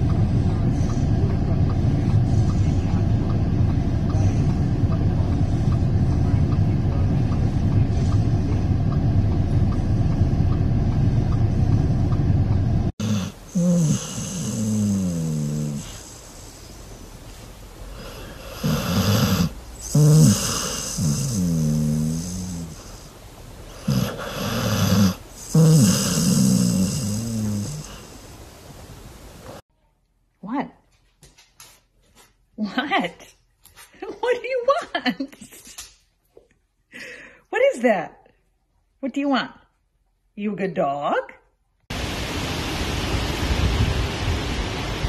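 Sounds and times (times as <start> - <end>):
low rumble: 0.0 - 13.0, 41.9 - 45.0
dog snoring: 13.0 - 16.8, 17.9 - 28.3.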